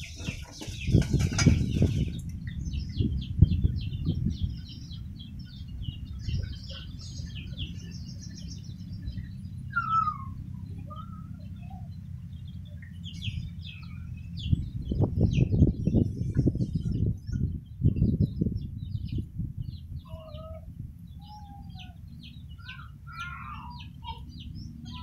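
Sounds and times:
scuffling knocks and thumps: 0.0s - 2.1s
birds chirping and calling: 0.0s - 25.0s
low steady rumble: 0.0s - 25.0s
falling whistled call: 9.7s - 10.4s.

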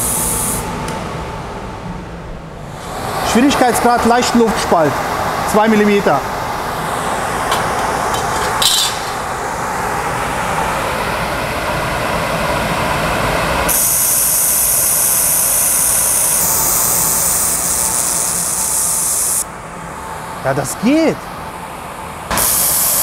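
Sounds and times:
laser welder hissing: 0.0s - 0.7s, 13.7s - 19.5s, 22.3s - 23.0s
steady fan noise: 0.0s - 23.0s.

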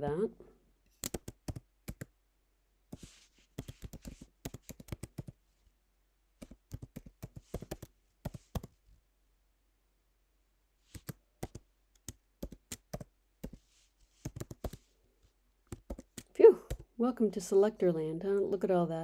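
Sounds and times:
computer keyboard typing: 0.9s - 2.1s, 3.0s - 5.4s, 6.4s - 8.7s, 10.9s - 14.8s, 15.7s - 16.8s.

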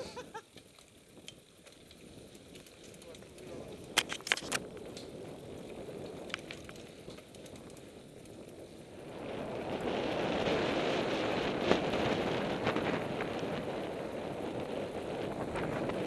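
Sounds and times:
bike clicks and rattles: 0.0s - 16.0s
bike tyre rolling on dirt: 0.0s - 16.0s
wind on microphone: 8.5s - 16.0s.

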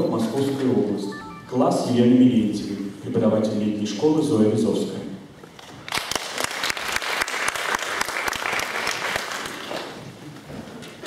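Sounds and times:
audience applauding: 5.9s - 10.0s.

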